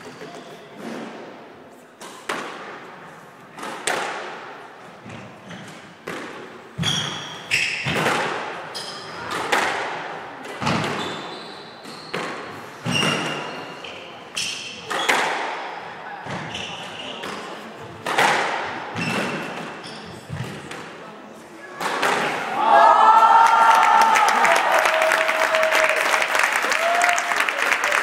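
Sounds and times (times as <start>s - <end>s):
squash ball hits echoing: 3.6s - 11.3s, 12.1s - 13.5s, 14.8s - 16.5s, 17.1s - 21.0s, 21.7s - 22.6s
sneakers squeaking on wooden floor: 6.8s - 8.1s, 8.7s - 9.4s, 10.6s - 17.6s, 18.9s - 20.7s.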